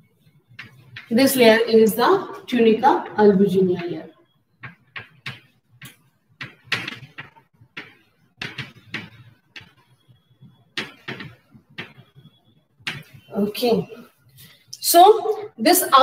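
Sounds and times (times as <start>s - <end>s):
chalk tapping and scratching: 0.5s - 1.3s, 4.6s - 13.3s.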